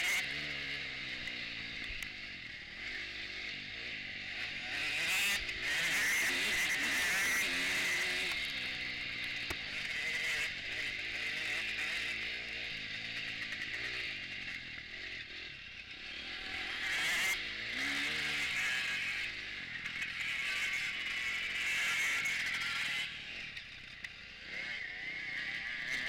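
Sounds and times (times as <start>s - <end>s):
motocross bike engine revving: 0.0s - 26.0s.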